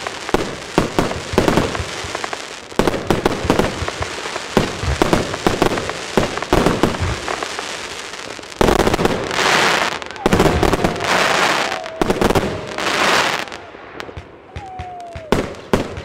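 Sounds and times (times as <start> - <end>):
firework launch thumps and bursts: 0.0 - 7.4.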